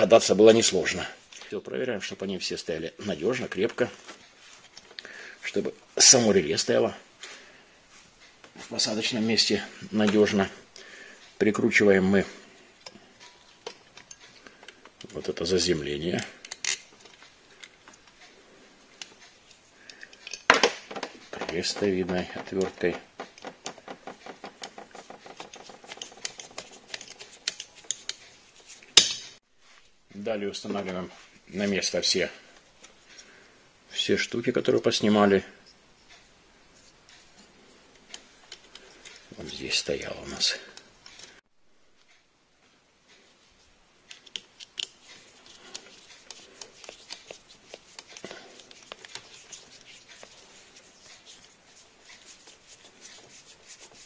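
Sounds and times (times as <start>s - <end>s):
wire rustling: 12.2s - 30.0s, 43.1s - 54.0s.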